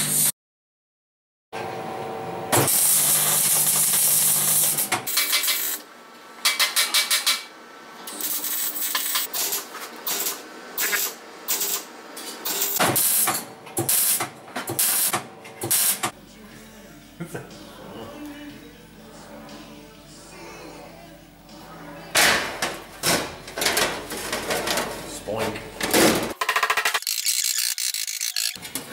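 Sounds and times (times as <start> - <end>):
welder arc crackling and hissing: 2.6 - 5.9, 8.1 - 9.5, 12.6 - 16.2.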